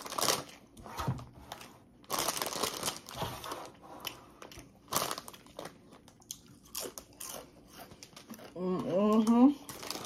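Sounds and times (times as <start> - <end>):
crunching and crinkling food: 0.0 - 10.0.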